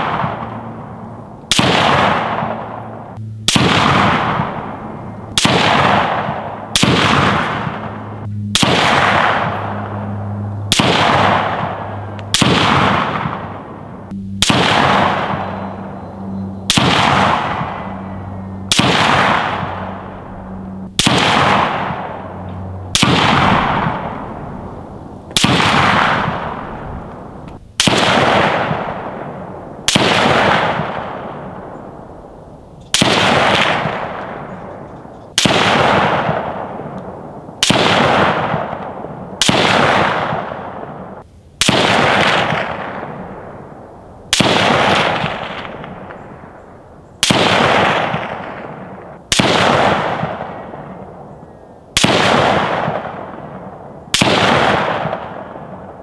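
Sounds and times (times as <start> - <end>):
rifle shots with echo: 0.0 - 16.1, 16.7 - 32.3, 32.9 - 56.0
low steady hum: 0.0 - 37.6, 40.2 - 47.2.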